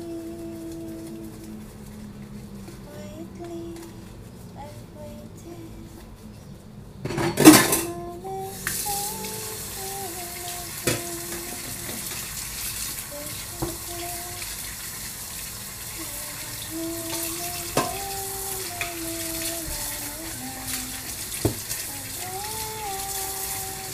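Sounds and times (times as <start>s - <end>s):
tap water running into a sink: 8.6s - 23.9s.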